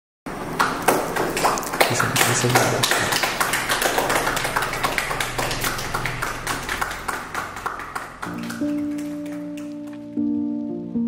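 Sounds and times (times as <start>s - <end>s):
small group clapping: 0.3s - 10.2s
music with held notes: 5.9s - 11.0s.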